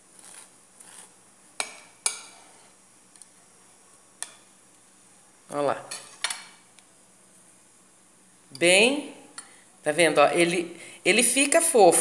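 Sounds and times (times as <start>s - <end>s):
knife scraping glass plate: 0.2s - 2.8s.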